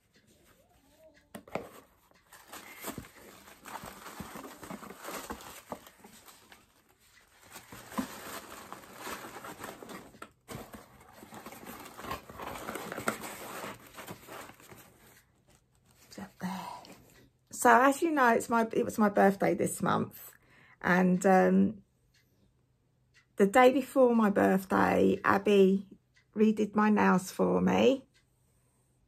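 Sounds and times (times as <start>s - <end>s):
packaging rustling and crinkling: 1.5s - 16.1s.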